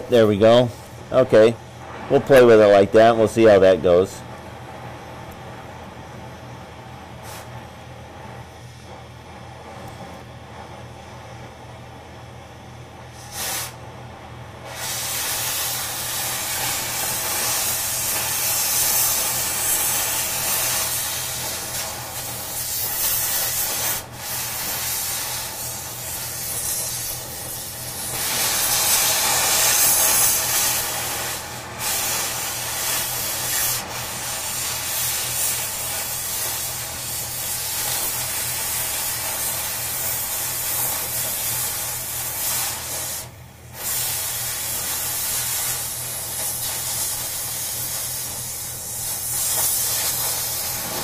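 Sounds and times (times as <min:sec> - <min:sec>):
cutting torch hissing: 0:07.1 - 0:10.1, 0:13.0 - 0:13.9, 0:14.6 - 0:51.0.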